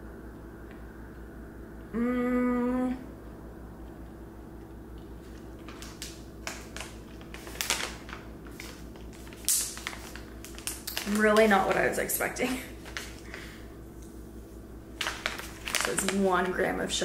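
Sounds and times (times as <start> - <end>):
woman humming hmm: 1.8 - 3.2
plastic snack pouch crinkling: 5.3 - 13.5, 15.0 - 16.6.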